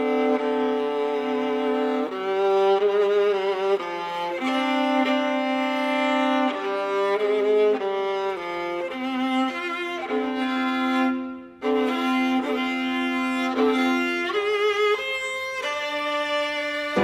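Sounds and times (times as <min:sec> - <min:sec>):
solo viola playing: 0:00.0 - 0:17.0.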